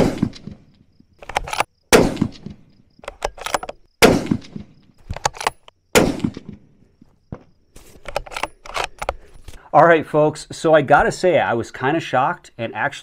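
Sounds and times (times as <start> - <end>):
rifle shots: 0.0 - 0.6, 1.4 - 6.7
rifle bolt metallic clicks: 0.0 - 6.6, 8.0 - 9.2.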